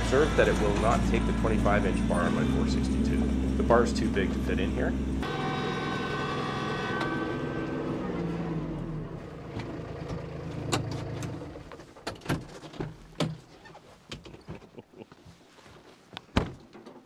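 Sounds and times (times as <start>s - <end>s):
tractor engine running: 0.0s - 13.4s.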